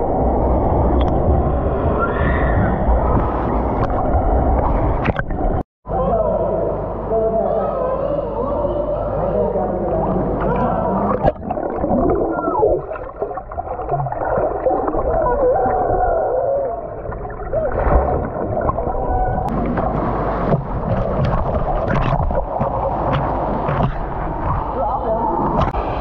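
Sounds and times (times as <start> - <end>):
muffled underwater gurgling: 9.9 - 26.0
sharp underwater clicks: 20.5 - 24.8.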